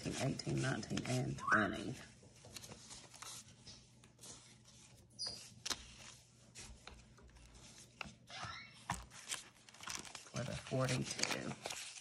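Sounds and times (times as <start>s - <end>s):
rustling of paper banknotes: 0.0s - 12.0s.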